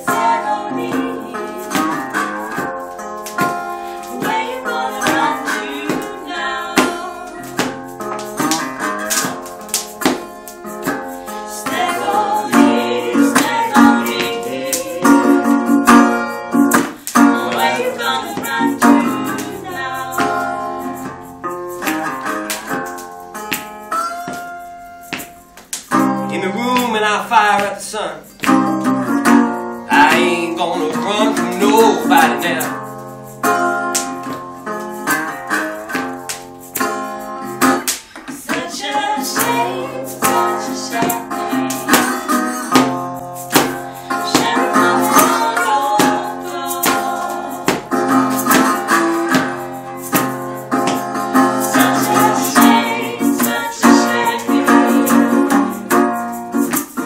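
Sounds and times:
voices singing: 0.0 - 2.8, 3.5 - 7.9, 11.1 - 21.3, 29.9 - 32.8, 38.1 - 42.9, 43.6 - 56.0
acoustic guitar playing: 0.0 - 57.0.

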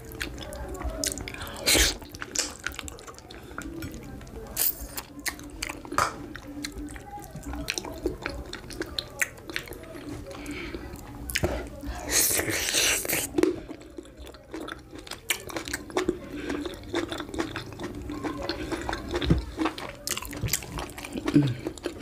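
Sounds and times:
wet chewing and swallowing: 0.0 - 22.0.

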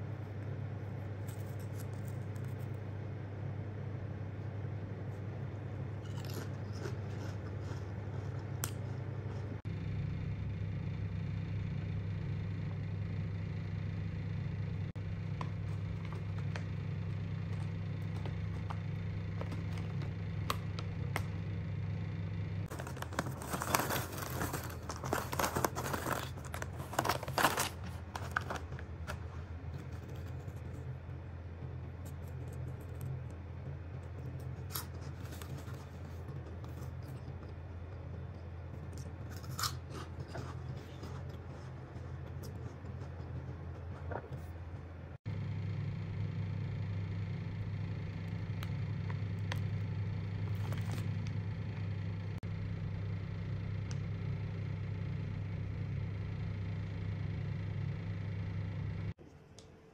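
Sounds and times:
steady low hum: 0.0 - 59.9
plastic snack bag crinkling: 22.7 - 30.4.

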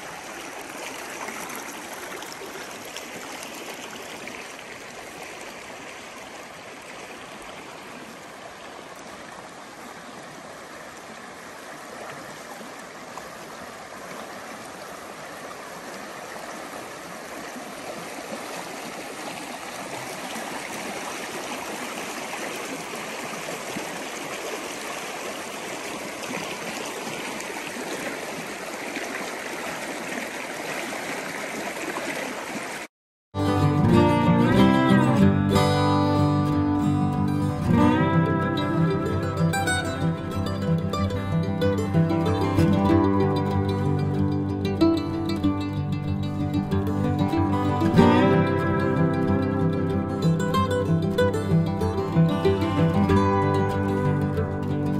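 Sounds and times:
creek water flowing: 0.0 - 54.9
guitar music: 33.4 - 54.9.

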